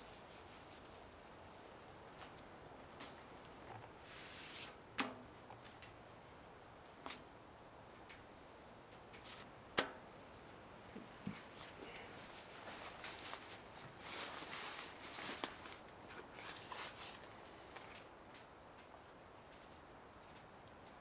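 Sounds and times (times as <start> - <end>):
tortilla rustling on metal: 0.0 - 4.8, 11.3 - 20.4.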